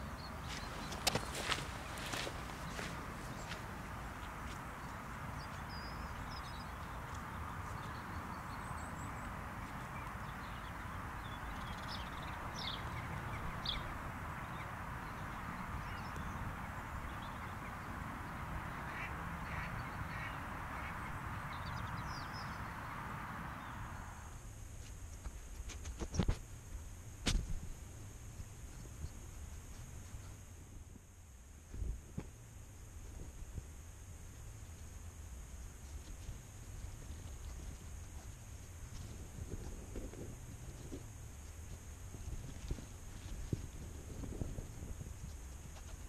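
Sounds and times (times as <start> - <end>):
birds calling: 0.0 - 24.3
steady background noise: 0.0 - 46.0.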